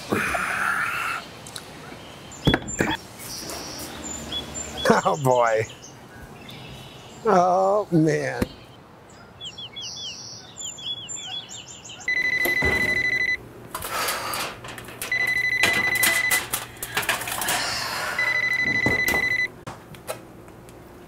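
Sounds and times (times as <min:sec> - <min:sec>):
birds chirping: 0:00.0 - 0:13.6
mobile phone ringing: 0:12.1 - 0:13.4, 0:15.0 - 0:16.7, 0:18.2 - 0:19.6.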